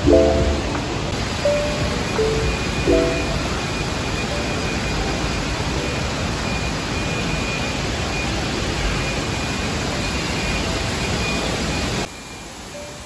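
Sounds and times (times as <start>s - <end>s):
faint high tone: 0.0s - 4.8s.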